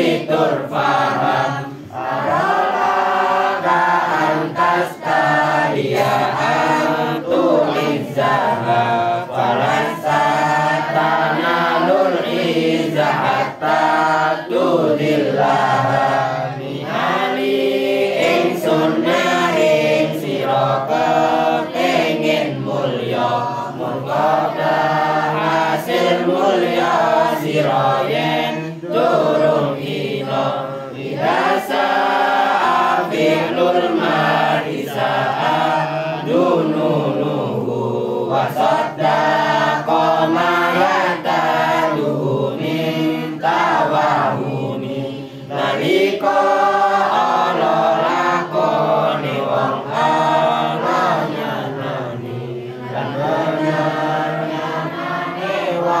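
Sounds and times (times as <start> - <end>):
young voices chanting in unison: 0.0 - 56.0.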